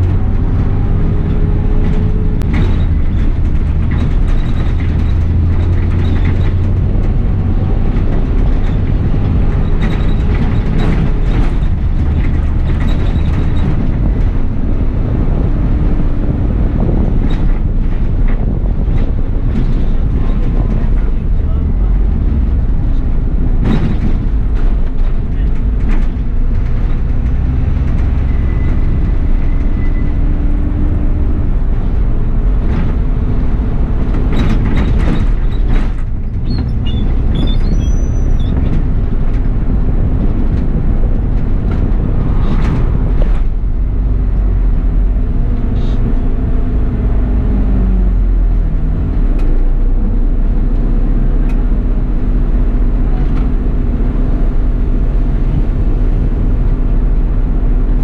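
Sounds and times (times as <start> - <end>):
knocks and rattles: 0.0 - 45.6
bus engine and road noise: 0.0 - 58.0.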